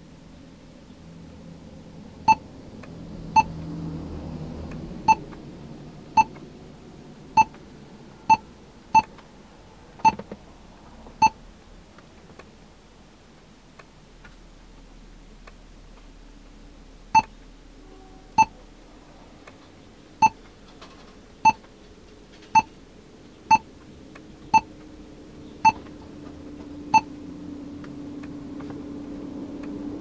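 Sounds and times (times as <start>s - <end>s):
faint low rumble: 0.0s - 21.6s
short high key-press beeps: 7.4s - 7.6s.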